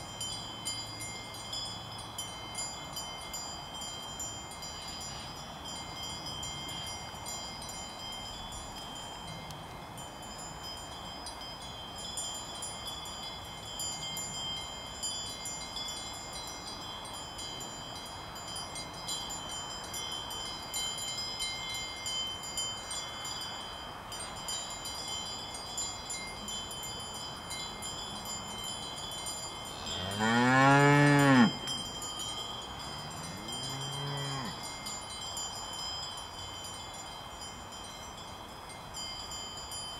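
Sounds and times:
cowbells ringing: 0.0 - 39.9
cow mooing: 29.8 - 31.6, 33.0 - 34.6.

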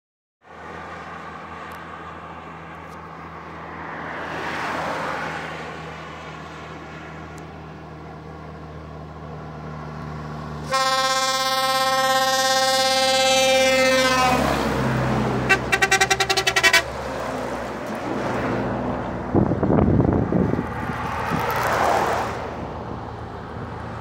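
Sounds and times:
highway traffic hum: 0.4 - 24.0
vehicle passing: 0.5 - 24.0
truck air horn blast: 10.6 - 14.8, 15.4 - 17.0.

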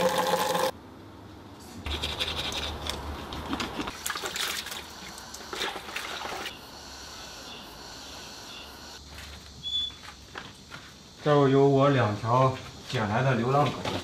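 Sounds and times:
water splashing from a tap: 0.0 - 0.7, 3.9 - 6.5.

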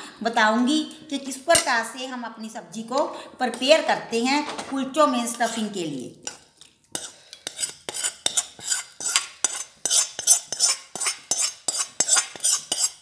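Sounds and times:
spoon scraping metal pan: 4.7 - 13.0.

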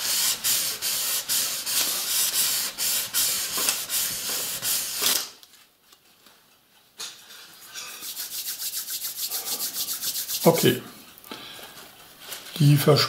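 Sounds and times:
tissue rubbing on wooden table: 8.0 - 10.8.

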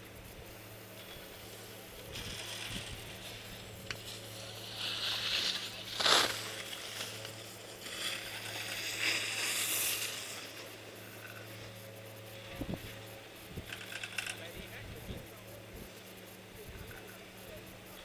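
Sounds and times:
skis scraping over snow: 1.1 - 11.8.

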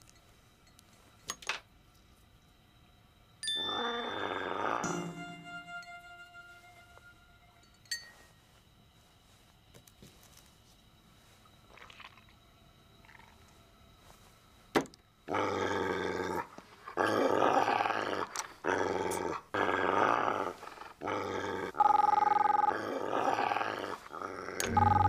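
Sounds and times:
dog growling: 15.3 - 24.7
telephone ringing: 24.6 - 25.0.

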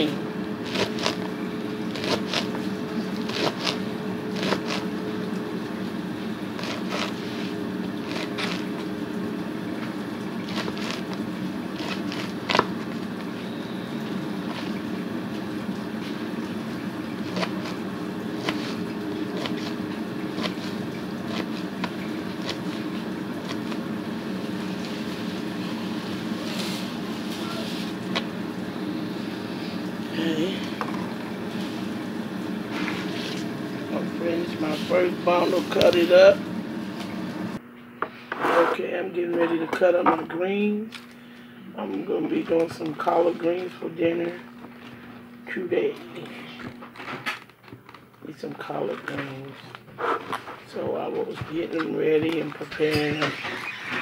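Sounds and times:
steady low hum: 0.0 - 54.0
knife slicing greens: 0.6 - 4.9, 6.4 - 8.9, 10.4 - 13.3, 14.4 - 14.8, 17.1 - 23.8.

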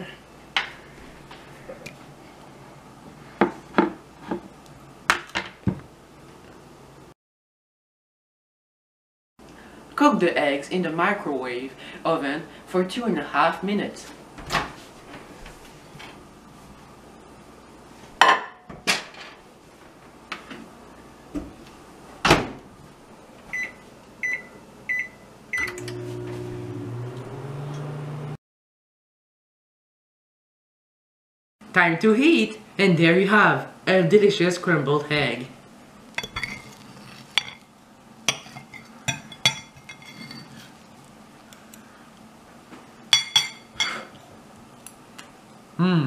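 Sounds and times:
cutlery clinking on ceramic plate: 36.2 - 37.6, 38.3 - 40.6.

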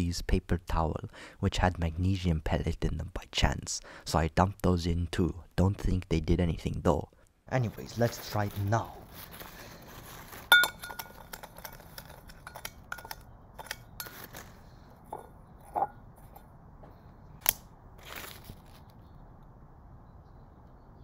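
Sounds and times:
rod clinking against glass cup: 10.5 - 14.3.

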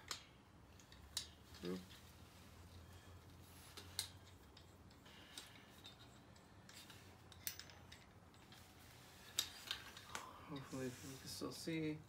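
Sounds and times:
metal clicks and rattles: 0.0 - 2.0, 3.7 - 8.7.

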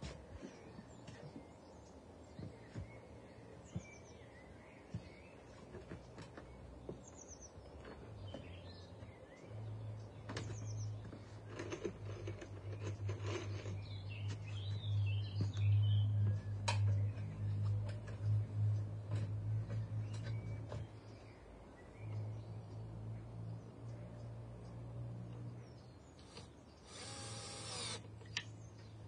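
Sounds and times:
birds chirping faintly: 0.0 - 29.0
low steady rumble: 11.8 - 28.7.

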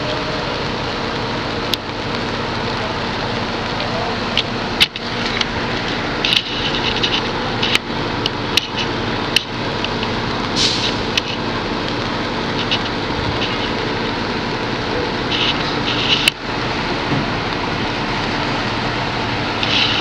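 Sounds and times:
fire truck engines droning: 0.0 - 20.0.

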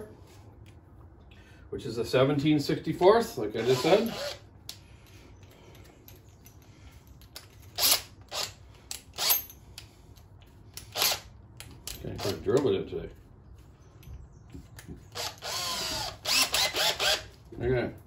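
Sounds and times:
drill chuck spinning and ratcheting: 3.6 - 4.4, 7.4 - 9.4, 10.8 - 11.3, 15.1 - 17.3.

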